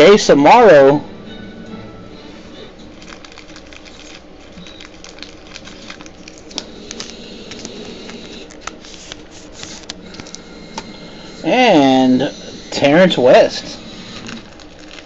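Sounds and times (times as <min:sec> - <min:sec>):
trading card clicks and rustling: 0:02.8 - 0:10.4.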